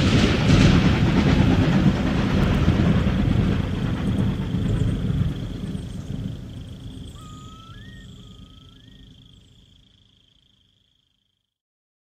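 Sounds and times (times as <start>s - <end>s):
low noisy rumble: 0.0s - 10.8s
thin steady high tone: 4.0s - 11.4s.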